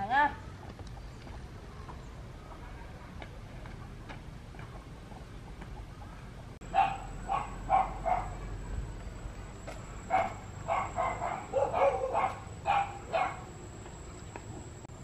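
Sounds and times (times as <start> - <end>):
dog barking: 6.7 - 8.4, 10.1 - 13.5.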